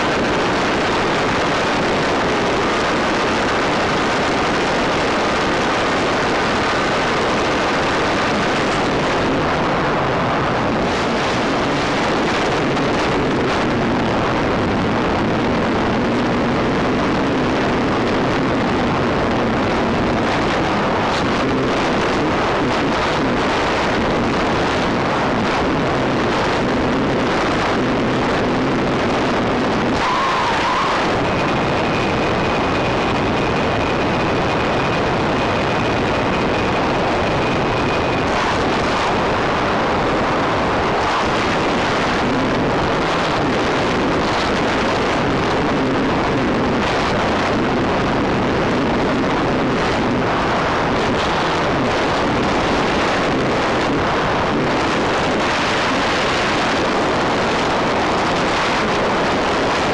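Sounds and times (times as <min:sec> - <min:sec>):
faint high whine: 0:00.0 - 0:59.9
rushing airflow noise: 0:00.0 - 0:59.9.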